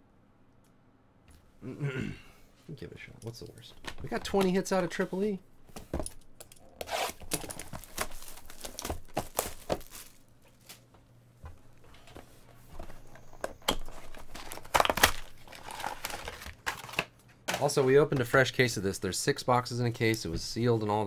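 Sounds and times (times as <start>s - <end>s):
plastic wrap and cardboard tearing: 6.8s - 10.8s, 13.9s - 17.1s.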